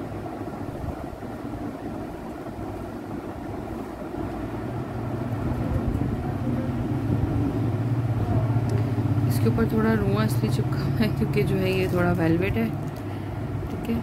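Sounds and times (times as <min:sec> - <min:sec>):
low background rumble: 0:00.0 - 0:14.0.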